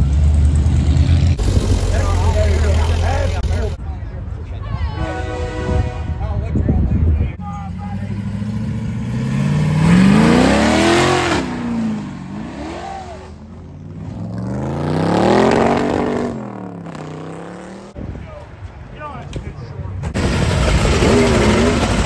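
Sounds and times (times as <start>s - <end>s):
truck engine revving: 0.0s - 3.8s, 7.7s - 18.0s, 20.2s - 22.0s.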